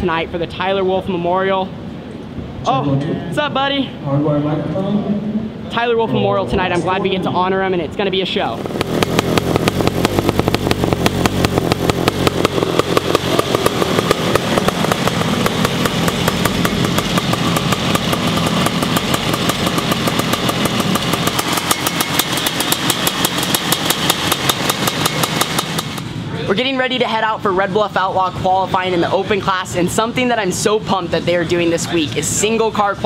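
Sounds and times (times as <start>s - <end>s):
two-stroke engine idling: 8.6s - 26.3s.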